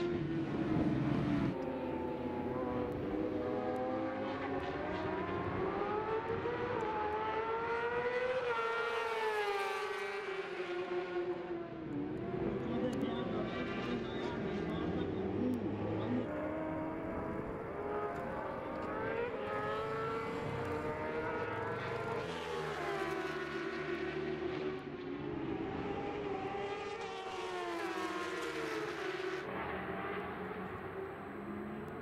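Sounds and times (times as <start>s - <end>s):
motorcycle engines revving: 0.0s - 32.0s.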